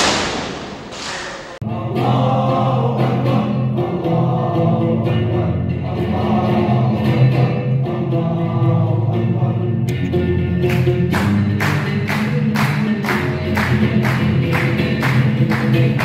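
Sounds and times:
men singing in chorus: 1.6 - 9.2.

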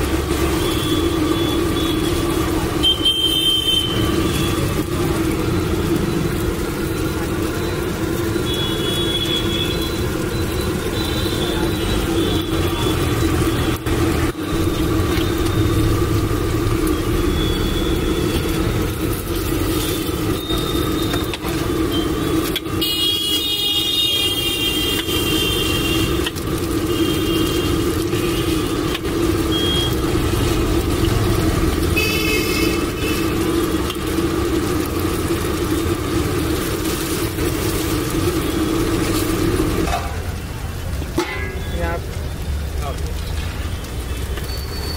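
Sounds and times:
oil deep-frying hiss: 0.0 - 44.9
traffic noise: 0.0 - 44.9
vehicle horn toots: 2.8 - 4.7, 8.4 - 10.1, 20.3 - 26.2, 26.8 - 28.7, 31.9 - 33.4.

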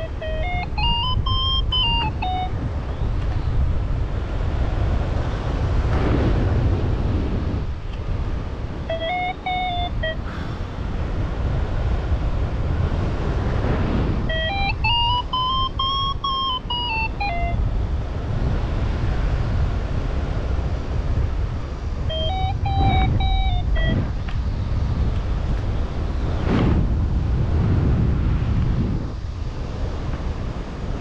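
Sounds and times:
wind rushing over microphone: 0.0 - 31.0
variometer quick short beeps: 22.1 - 24.1.

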